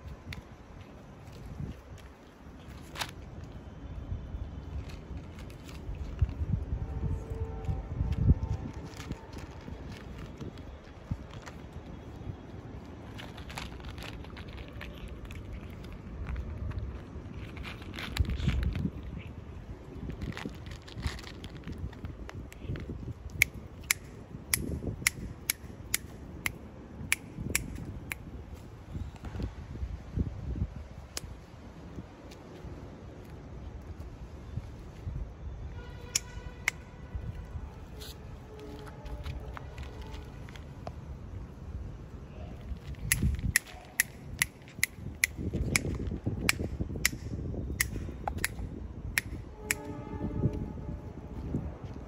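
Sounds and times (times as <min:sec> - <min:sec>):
cat crunching dry kibble: 0:04.6 - 0:06.6, 0:08.4 - 0:24.0.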